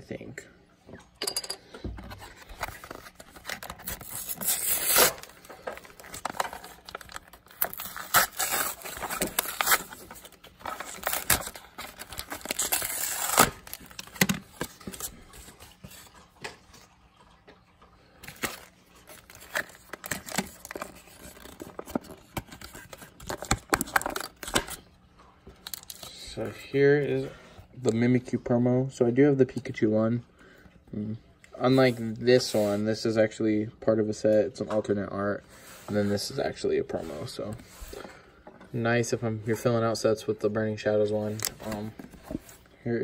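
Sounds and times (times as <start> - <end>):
plastic packaging crinkling: 2.3 - 16.0, 18.2 - 24.9
plastic pack tearing: 2.5 - 15.4, 18.2 - 24.8.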